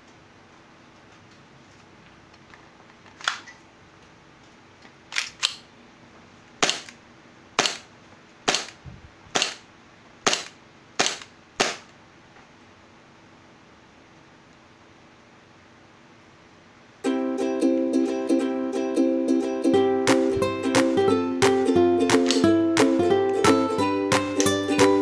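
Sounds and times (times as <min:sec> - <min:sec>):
airsoft pistol shots: 0:06.6 - 0:07.0, 0:07.6 - 0:07.9, 0:08.5 - 0:09.6, 0:10.2 - 0:11.9.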